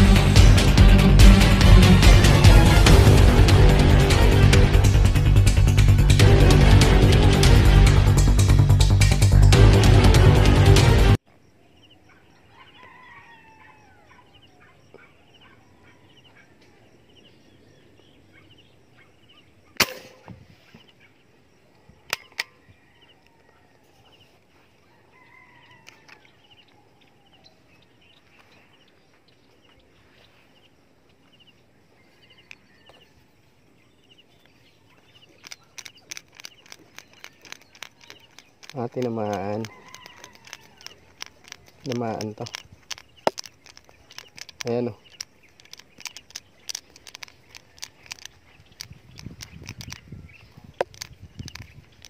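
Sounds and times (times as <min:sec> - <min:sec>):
faint chickens calling: 0:11.8 - 0:52.0
rifle shot crack: 0:19.8 - 0:20.4
clicks: 0:35.3 - 0:50.0, 0:50.8 - 0:52.0.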